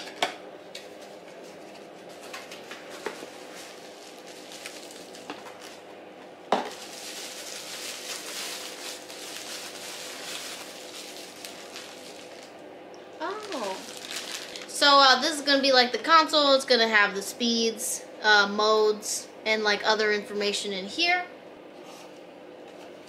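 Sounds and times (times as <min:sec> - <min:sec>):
faint steady hum: 0:00.0 - 0:23.0
plastic bag crinkling: 0:02.4 - 0:05.8, 0:06.6 - 0:12.6, 0:13.2 - 0:14.8.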